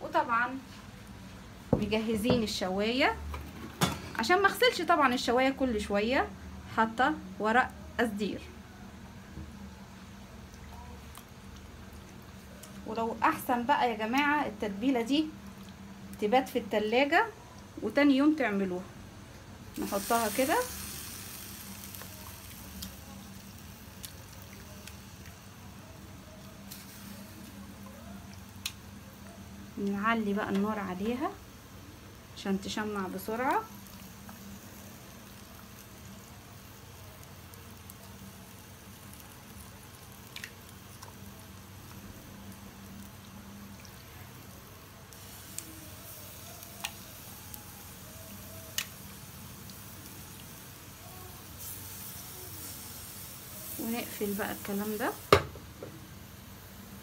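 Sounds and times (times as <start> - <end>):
faint steady hiss: 0.0 - 57.0.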